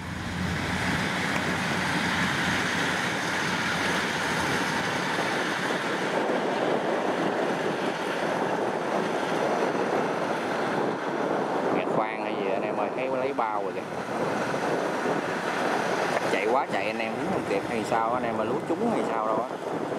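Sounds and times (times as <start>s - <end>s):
combine harvester engine and threshing: 0.0s - 19.9s.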